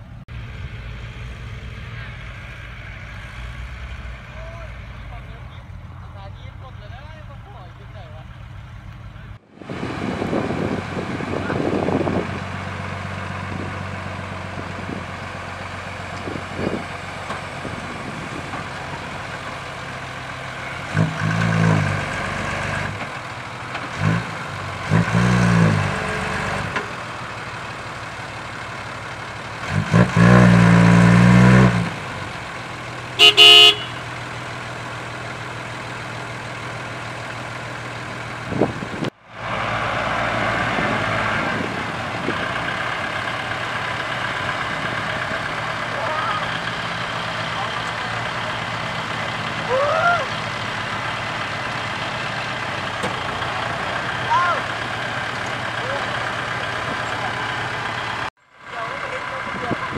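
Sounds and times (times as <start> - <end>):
diesel truck engine revving: 0.0 - 59.9
truck horn toot: 33.2 - 34.3.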